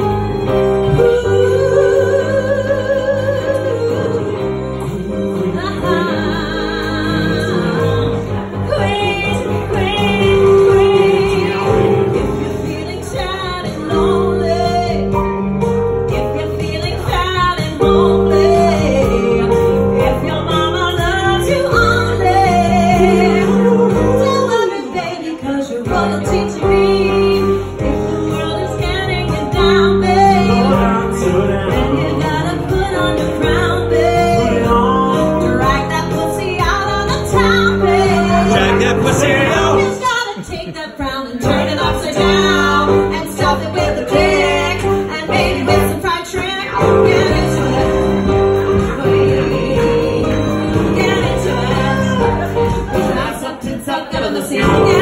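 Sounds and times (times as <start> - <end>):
woman singing into a microphone: 0.0 - 15.4, 16.1 - 55.0
instrumental pop accompaniment: 0.0 - 55.0.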